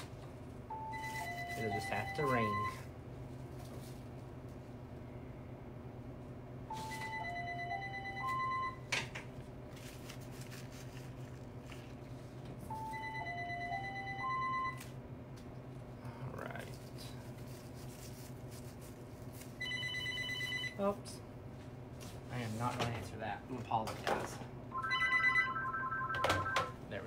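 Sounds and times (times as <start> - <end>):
phone ringtone melody: 0.7 - 2.8, 6.7 - 8.8, 12.7 - 14.8, 19.6 - 20.8, 24.7 - 26.8.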